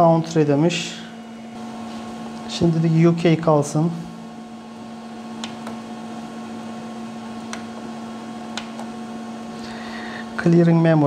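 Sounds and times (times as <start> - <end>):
laser printer humming: 0.0 - 11.0.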